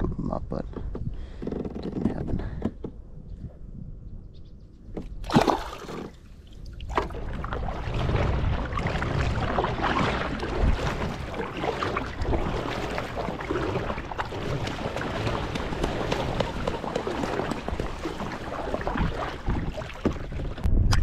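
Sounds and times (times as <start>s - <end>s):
water sloshing against hull: 4.9s - 21.0s
kayak paddle dipping: 5.0s - 20.8s
fish splashing into water: 5.2s - 20.4s.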